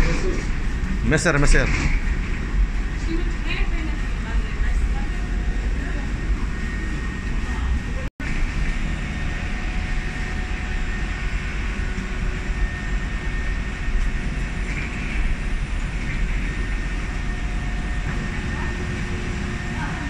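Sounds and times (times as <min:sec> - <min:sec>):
aircraft ground machinery roar: 0:00.0 - 0:20.0
faint steady whine: 0:00.0 - 0:20.0.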